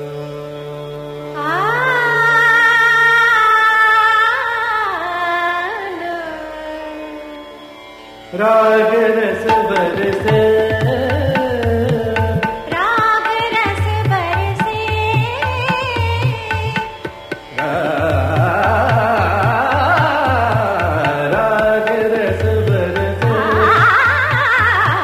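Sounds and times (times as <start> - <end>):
tabla strokes: 9.4 - 25.0.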